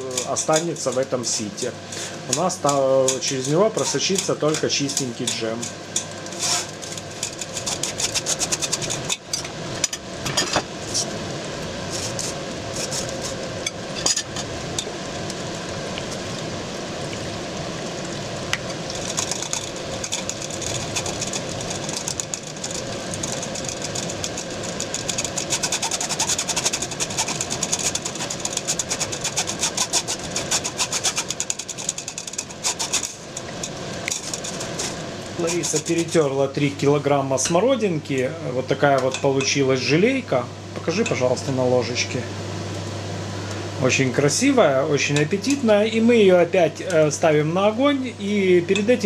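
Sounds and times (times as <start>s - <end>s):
spoon scraping metal sieve: 0.0s - 9.5s, 19.0s - 36.3s.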